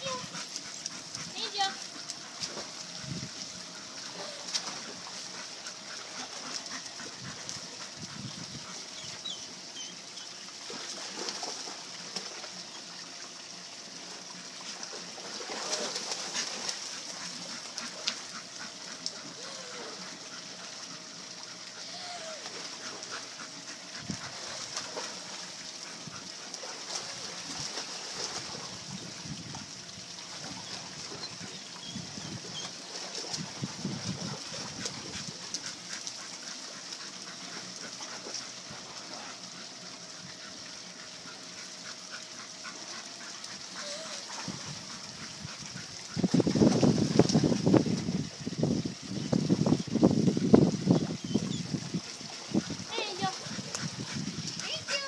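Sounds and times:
hiss of moving pool water: 0:00.0 - 0:55.0
dog splashing through water: 0:04.1 - 0:07.9, 0:14.7 - 0:20.3, 0:22.4 - 0:28.9, 0:30.2 - 0:39.8, 0:42.3 - 0:48.2
dog whining: 0:19.4 - 0:20.1, 0:21.8 - 0:22.5, 0:43.8 - 0:44.4.

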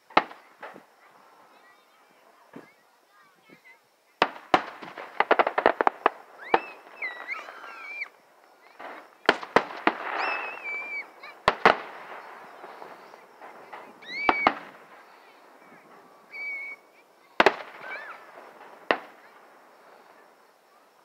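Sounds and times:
fireworks bangs: 0:00.0 - 0:21.0
fireworks crackles: 0:00.0 - 0:21.0.

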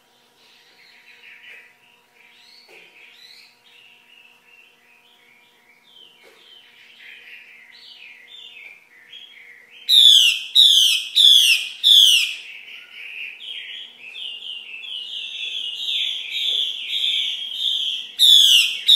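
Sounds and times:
thrush calling: 0:09.9 - 0:12.5, 0:15.2 - 0:18.9.

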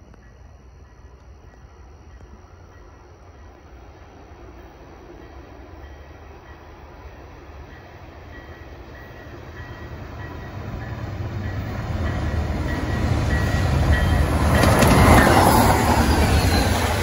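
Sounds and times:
passenger train rumble: 0:00.0 - 0:17.0
train wheels clattering: 0:07.8 - 0:17.0.

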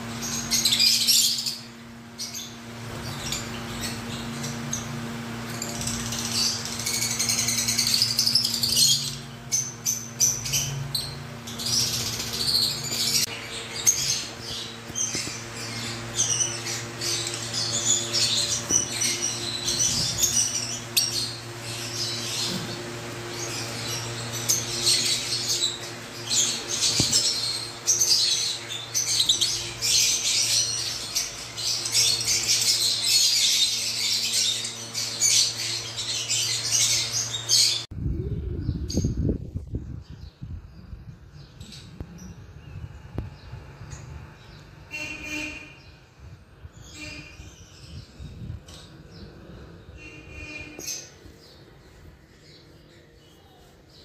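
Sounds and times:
lovebirds chirping and chattering: 0:00.0 - 0:54.0
steady low hum: 0:00.0 - 0:54.0.

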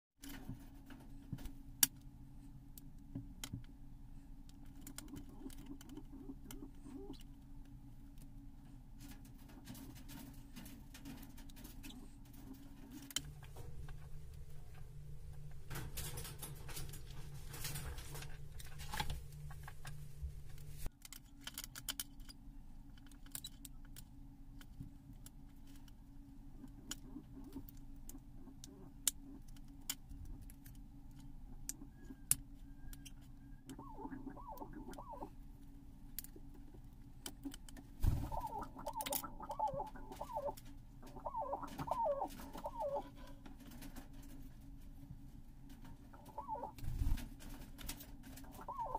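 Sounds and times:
steady low hum: 0:00.2 - 0:48.9
bird calling: 0:31.8 - 0:35.4, 0:38.1 - 0:43.2, 0:46.1 - 0:46.8, 0:48.4 - 0:48.9.

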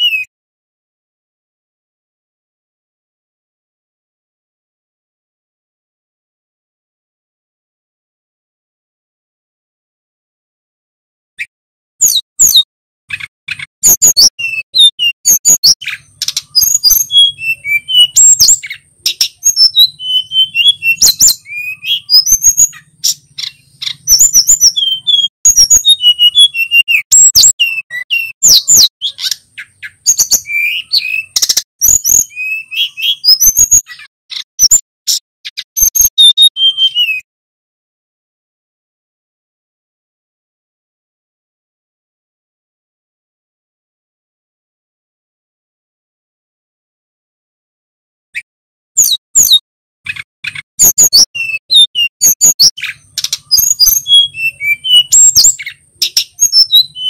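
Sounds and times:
bird singing with whistles: 0:00.0 - 0:00.3, 0:12.0 - 0:37.2, 0:48.4 - 0:57.0.

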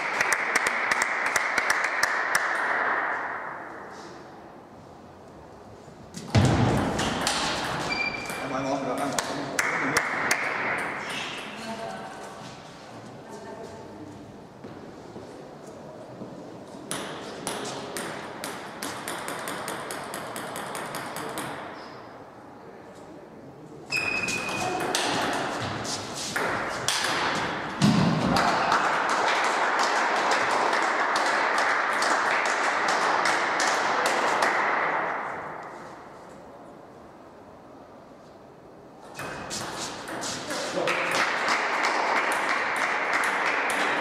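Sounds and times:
clapping: 0:00.0 - 0:02.9, 0:28.3 - 0:34.8, 0:40.9 - 0:44.0.

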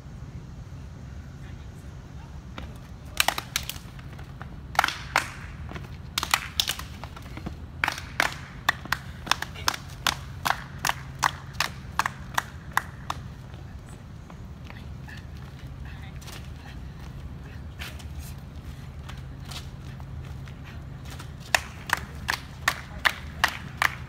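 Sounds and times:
hand claps and body slaps: 0:02.6 - 0:13.4, 0:21.0 - 0:24.0.

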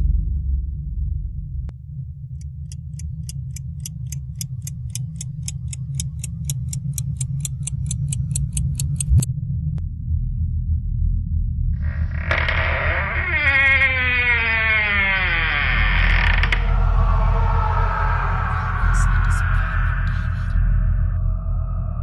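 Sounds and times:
low drone: 0:00.0 - 0:22.0
clock ticking fast: 0:02.4 - 0:09.3.

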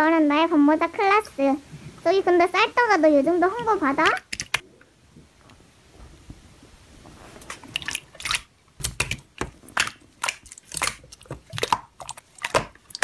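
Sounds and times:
slime squelching: 0:07.3 - 0:13.0.

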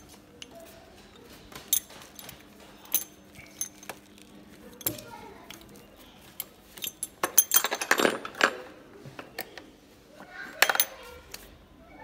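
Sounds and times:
metal tools clinking: 0:00.0 - 0:08.8, 0:10.5 - 0:11.2.

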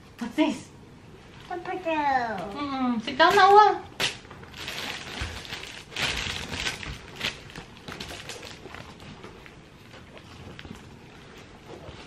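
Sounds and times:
cloth and plastic rustling: 0:03.2 - 0:12.0.

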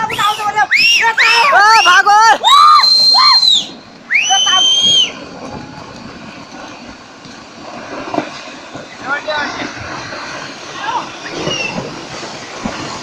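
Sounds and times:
landslide rumble: 0:00.0 - 0:13.0
shrill screams: 0:00.7 - 0:05.2.

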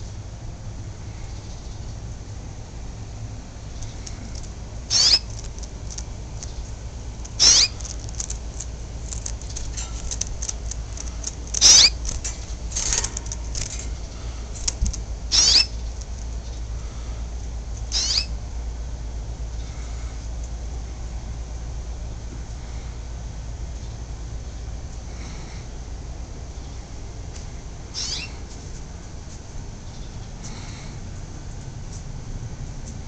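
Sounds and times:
steady low hum: 0:00.0 - 0:33.0
canary chirping: 0:03.8 - 0:13.4, 0:15.3 - 0:16.6, 0:17.9 - 0:18.4, 0:28.0 - 0:28.4
bird twittering: 0:04.9 - 0:05.5, 0:07.3 - 0:07.9, 0:11.5 - 0:12.0, 0:15.3 - 0:16.6, 0:17.9 - 0:18.3, 0:28.0 - 0:28.4.

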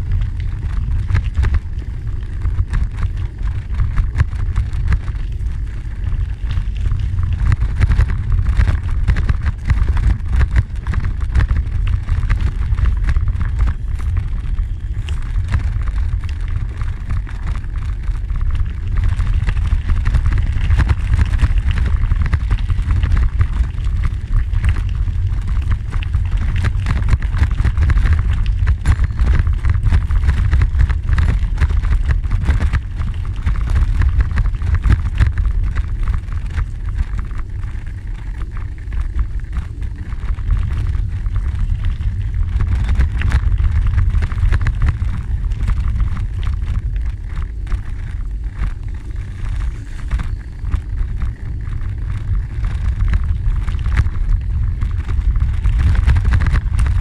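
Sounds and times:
bicycle tyres rolling on gravel: 0:00.0 - 0:57.0
wind buffeting microphone: 0:00.0 - 0:57.0.

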